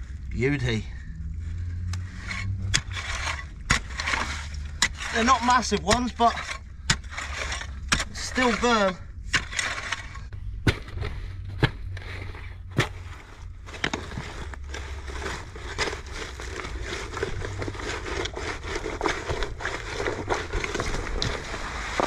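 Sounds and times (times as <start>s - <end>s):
garden fork digging into gravel: 2.1s - 11.2s, 12.0s - 22.0s
fork tines knocking stone: 2.7s - 10.9s.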